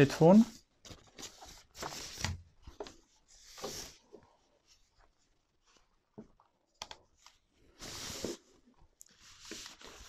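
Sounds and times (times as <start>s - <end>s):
headset rustling on plastic wrapping: 9.1s - 10.0s.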